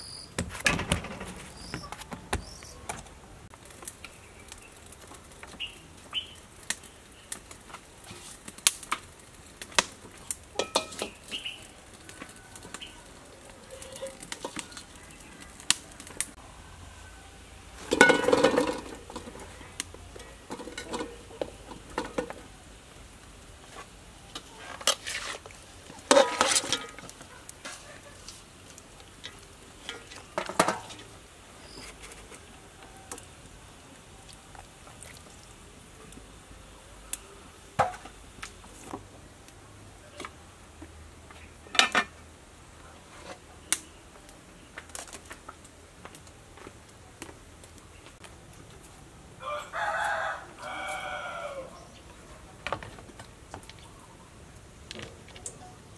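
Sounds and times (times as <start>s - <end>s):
rooster crowing: 12.0s - 14.2s, 16.4s - 18.1s, 49.4s - 52.0s
food knocking in metal pot: 17.9s - 19.4s.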